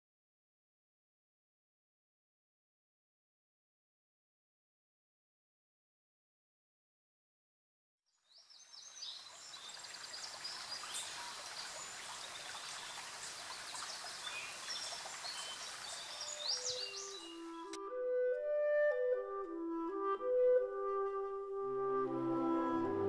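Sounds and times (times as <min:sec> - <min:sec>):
birds chirping: 0:08.4 - 0:17.7
creek water running: 0:08.4 - 0:17.8.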